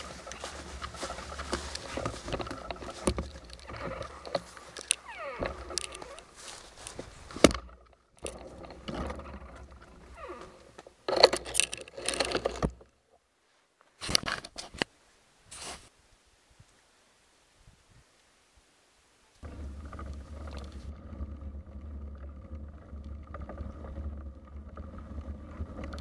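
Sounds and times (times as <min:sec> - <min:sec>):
rustling through dry grass: 0:00.0 - 0:11.0, 0:13.4 - 0:16.0, 0:19.3 - 0:22.3.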